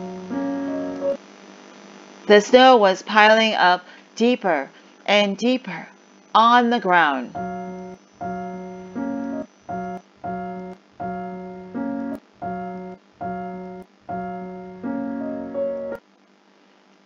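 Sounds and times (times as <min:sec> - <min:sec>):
held keyboard notes: 0:00.0 - 0:01.2, 0:07.4 - 0:16.0.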